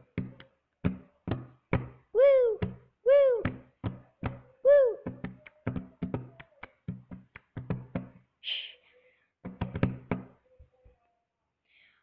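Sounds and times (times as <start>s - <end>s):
palms slapping a tabletop: 0.0s - 2.0s, 2.6s - 8.3s, 9.4s - 10.4s
hands clapping in rhythm: 0.0s - 8.2s.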